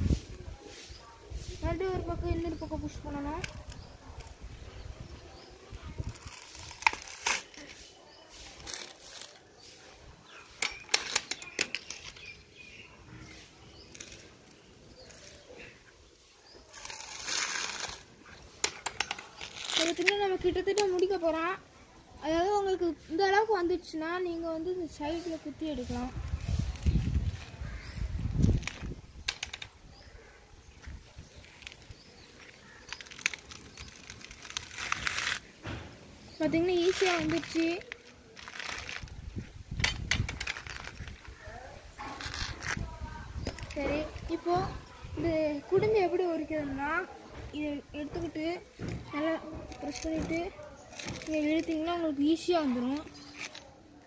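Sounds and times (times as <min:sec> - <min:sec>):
coconut husk ripping and snapping: 0:05.6 - 0:09.6, 0:10.2 - 0:15.9, 0:16.6 - 0:21.0, 0:26.2 - 0:29.6, 0:30.2 - 0:44.9, 0:48.7 - 0:54.0.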